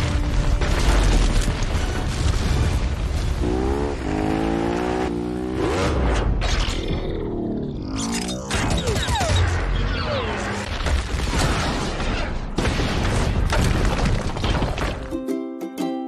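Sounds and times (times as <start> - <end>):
crashing debris: 0.0 - 3.5, 10.6 - 15.1
explosions: 0.0 - 4.7, 8.5 - 15.1
motorcycle engine pitch glides: 3.4 - 8.5
light ukulele music: 15.1 - 16.0.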